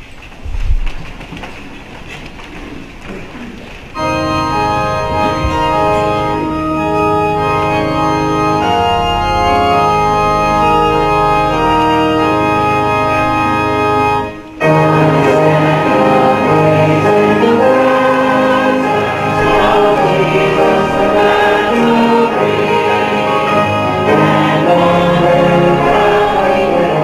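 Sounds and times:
people shuffling: 0:00.0 - 0:07.0
church organ playing chords: 0:04.0 - 0:27.0.

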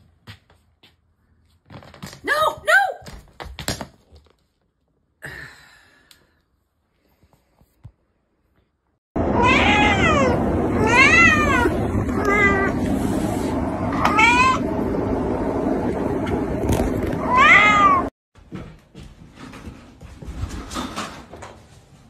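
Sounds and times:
cat meowing: 0:09.3 - 0:12.8, 0:14.0 - 0:14.6, 0:17.2 - 0:18.1.

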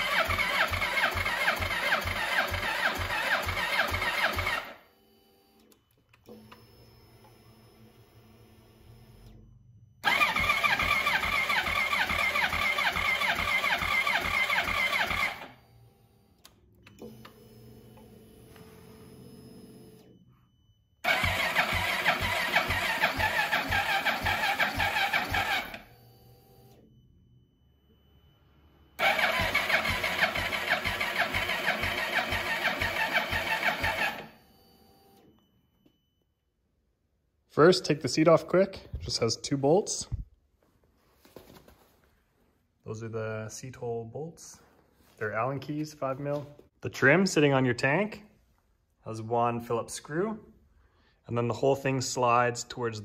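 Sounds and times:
engine cranking without firing: 0:00.0 - 0:04.8, 0:10.0 - 0:15.6, 0:21.0 - 0:25.9, 0:29.0 - 0:34.4.

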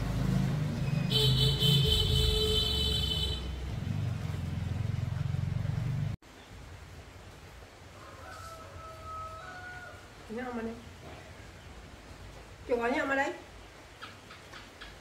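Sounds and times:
engine rumbling: 0:00.0 - 0:07.2.

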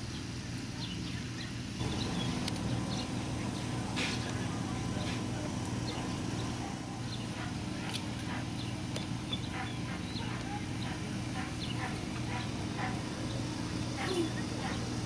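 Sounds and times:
steady low hum: 0:00.0 - 0:15.0
puppies yipping and squeaking: 0:05.9 - 0:15.0.

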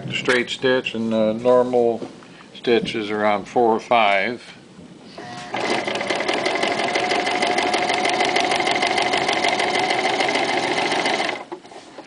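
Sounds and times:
sewing machine stitching: 0:05.5 - 0:12.0.

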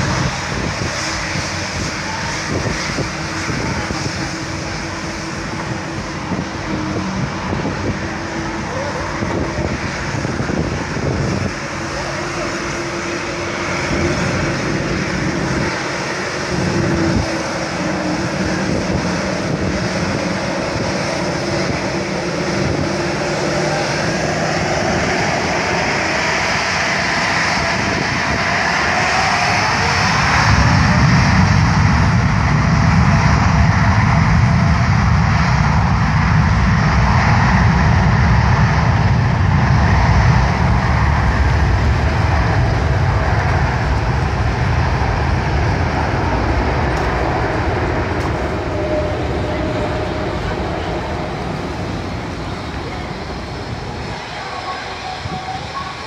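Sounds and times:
deep rumble of takeoff roll: 0:00.0 - 0:56.0
jet engines whining: 0:00.0 - 0:56.0.

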